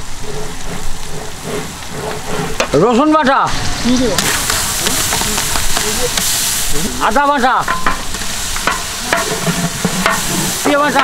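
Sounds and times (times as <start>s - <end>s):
wavering pitched calls: 0.0s - 7.5s
curry sizzling in oil: 3.5s - 11.0s
metal ladle scraping pot: 7.6s - 11.0s.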